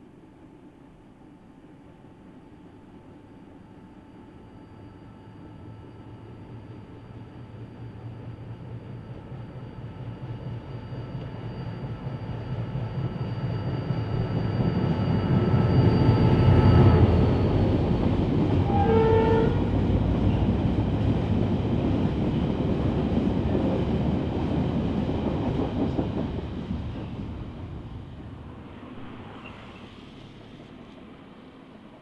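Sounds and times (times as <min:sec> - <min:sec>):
diesel locomotive engine passing: 0:04.2 - 0:32.0
two-note train horn: 0:15.5 - 0:17.5, 0:18.6 - 0:19.7.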